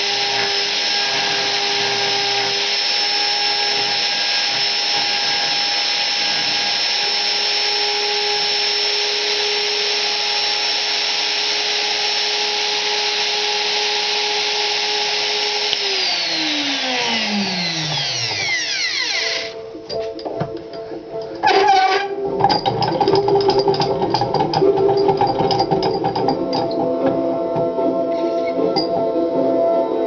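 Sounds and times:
electric cutter motor whining: 0.0s - 19.6s.

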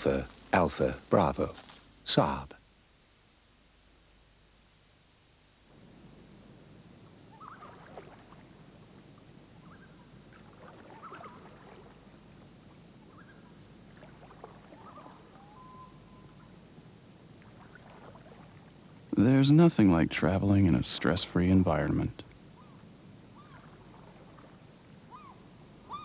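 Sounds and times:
steady background hiss: 0.0s - 26.0s
bird calls and chirps: 7.3s - 7.8s, 9.6s - 10.1s, 10.9s - 11.6s, 13.0s - 13.6s, 14.7s - 16.6s, 22.5s - 23.8s, 25.1s - 26.0s
flat whistle: 15.4s - 16.4s.

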